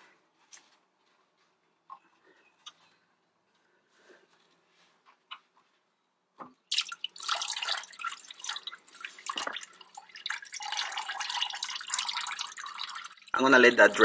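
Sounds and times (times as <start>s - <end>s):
coolant splashing into bucket: 6.7s - 14.0s.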